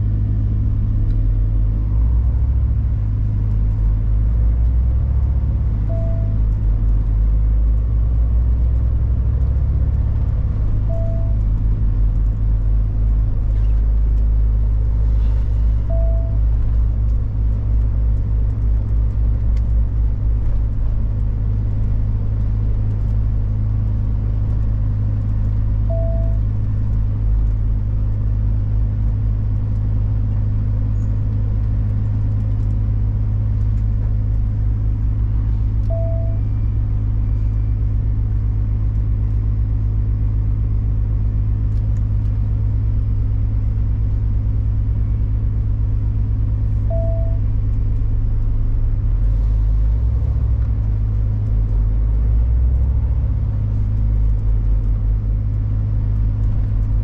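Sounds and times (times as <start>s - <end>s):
truck diesel engine drone: 0.0s - 57.0s
short beep: 5.8s - 6.5s, 10.8s - 11.4s, 15.8s - 16.4s, 25.9s - 26.4s, 35.9s - 37.7s, 46.8s - 47.5s.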